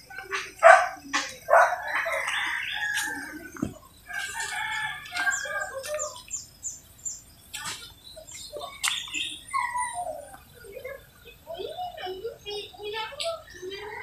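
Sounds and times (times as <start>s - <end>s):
roosters crowing: 0.0s - 6.3s
chickens clucking: 0.0s - 14.0s.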